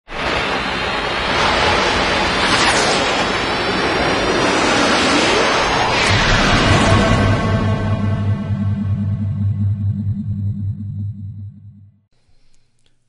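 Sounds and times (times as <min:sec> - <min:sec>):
rushing whoosh: 0:01.2 - 0:10.1
sweeping pitch glides: 0:05.2 - 0:12.1.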